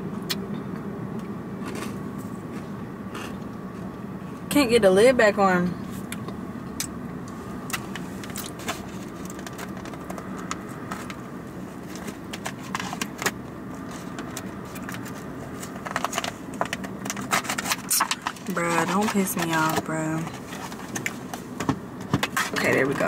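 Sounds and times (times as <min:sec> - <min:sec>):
steady hum inside a car: 0:00.0 - 0:23.0.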